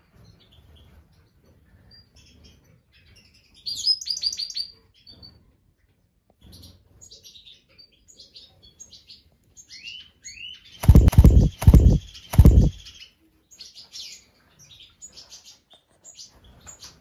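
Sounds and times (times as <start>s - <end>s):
birds chirping: 10.8s - 13.0s.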